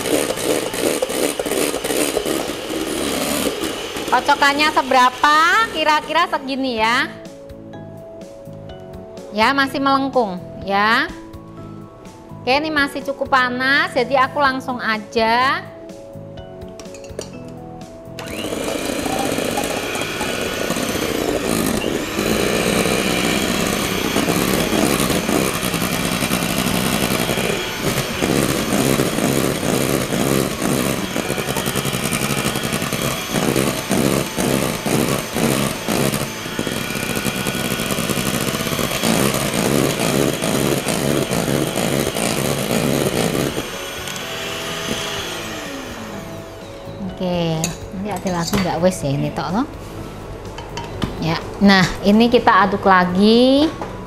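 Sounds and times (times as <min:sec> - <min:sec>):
electric hand mixer whipping: 0:00.0 - 0:06.7, 0:18.2 - 0:46.9.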